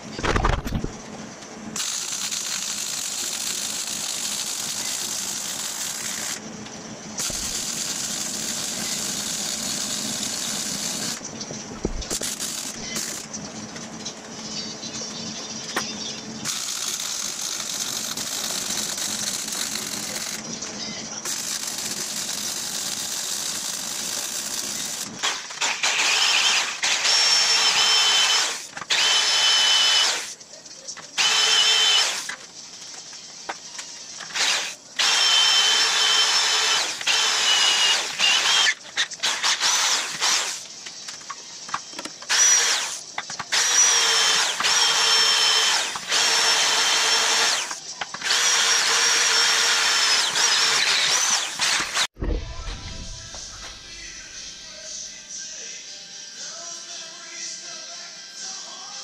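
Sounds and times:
welder hissing and crackling: 0:01.8 - 0:06.4, 0:07.2 - 0:11.2
electric drill whining: 0:07.2 - 0:11.2, 0:11.8 - 0:13.3, 0:21.2 - 0:30.4, 0:31.2 - 0:32.3, 0:34.2 - 0:40.6, 0:42.3 - 0:52.2.

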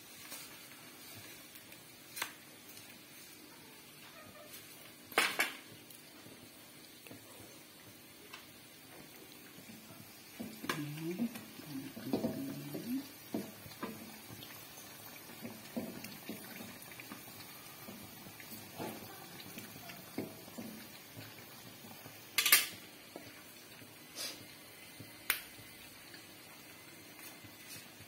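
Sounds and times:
dough sizzling in hot oil: 0:00.0 - 0:28.0.

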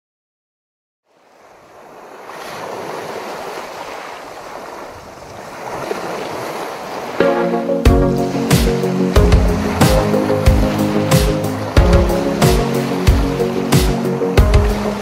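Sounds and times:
waves washing on pebble beach: 0:01.2 - 0:07.2
music: 0:07.2 - 0:15.0.

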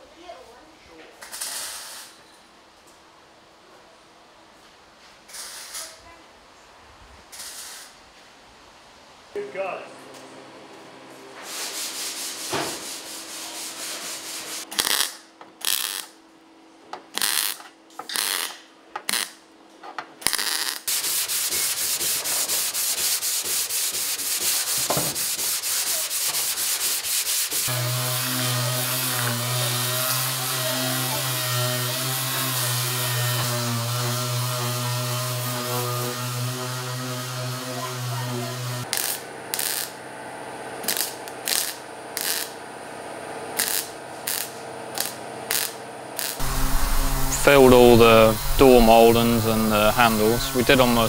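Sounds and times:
hand sanding metal panel: 0:11.4 - 0:14.7, 0:20.9 - 0:38.9, 0:45.0 - 0:51.0
machine hum with hiss: 0:43.3 - 0:51.0.

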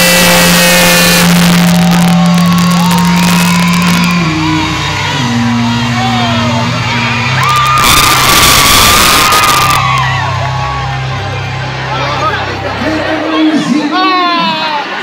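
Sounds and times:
live pop music: 0:00.0 - 0:11.4
held bass note: 0:00.0 - 0:12.8
crowd shouting and singing along: 0:00.0 - 0:15.0.

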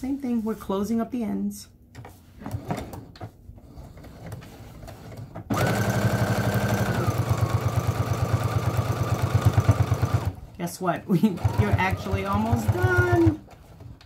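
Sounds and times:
sewing machine running: 0:05.5 - 0:10.4, 0:11.1 - 0:13.4.

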